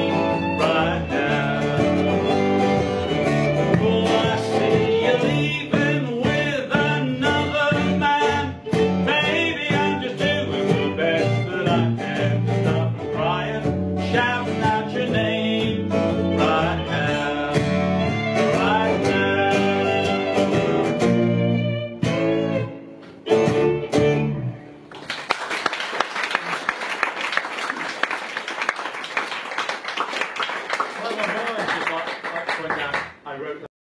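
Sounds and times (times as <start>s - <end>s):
man singing: 0.0s - 20.6s
country band playing: 0.0s - 25.0s
applause: 24.9s - 33.2s.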